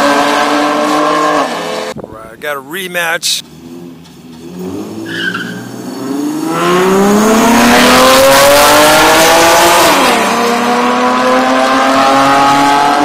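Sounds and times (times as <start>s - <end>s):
car engine at full throttle: 0.0s - 2.2s, 3.4s - 13.0s.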